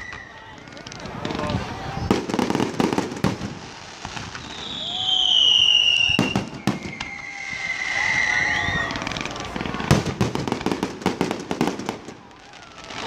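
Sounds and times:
firework whistle: 0:00.0 - 0:09.8
firework bangs: 0:00.0 - 0:13.0
firework crackling reports: 0:00.0 - 0:13.0.

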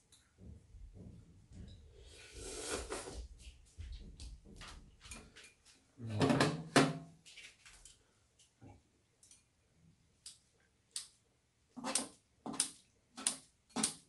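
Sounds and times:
pan on a metal tray: 0:05.1 - 0:14.0.

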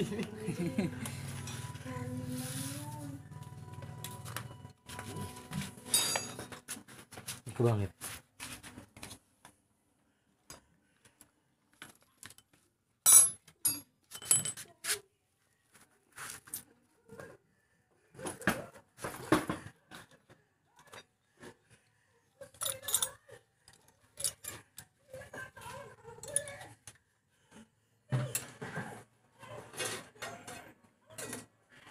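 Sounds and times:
metal hand tools clinking: 0:05.9 - 0:06.6, 0:22.5 - 0:23.2.

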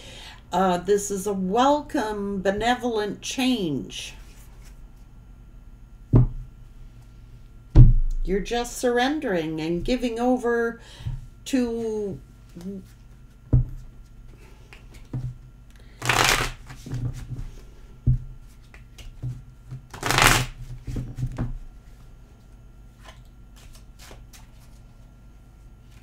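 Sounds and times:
cards shuffled by hand: 0:16.0 - 0:17.3, 0:19.9 - 0:20.6, 0:23.0 - 0:25.0.

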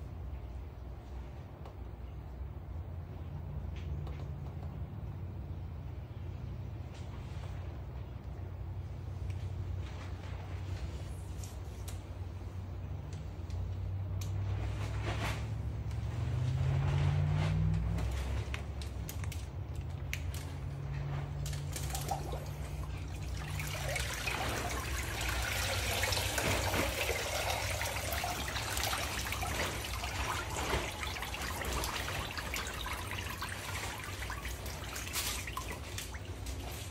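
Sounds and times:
low steady hum: 0:00.0 - 0:36.9
water trickling and dripping: 0:18.0 - 0:36.9
water splashing and pouring: 0:20.3 - 0:36.9.

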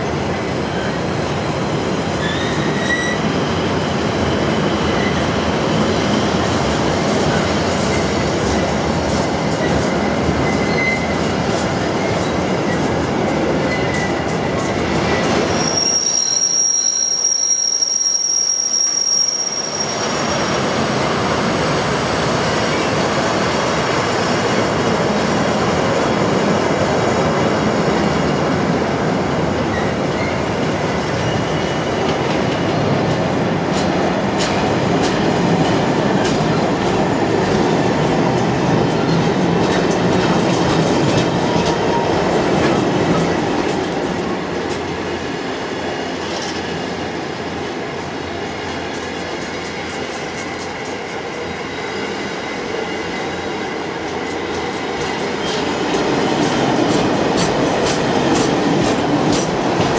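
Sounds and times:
train wheels rumbling and rattling: 0:00.0 - 0:59.9
train wheel squeal: 0:00.2 - 0:06.5, 0:07.3 - 0:25.3, 0:29.6 - 0:32.9, 0:48.4 - 0:58.5
wheels clicking over rail joints: 0:54.0 - 0:59.9.

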